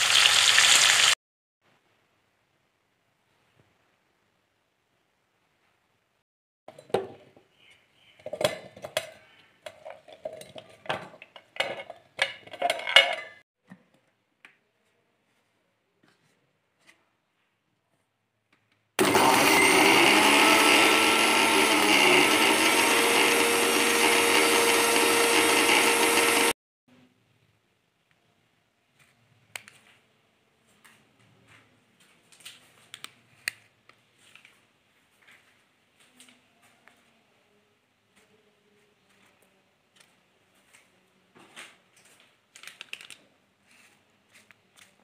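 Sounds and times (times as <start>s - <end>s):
onion chunks clattering into steel jar: 9.7s - 13.4s
mixer grinder motor running: 19.0s - 26.6s.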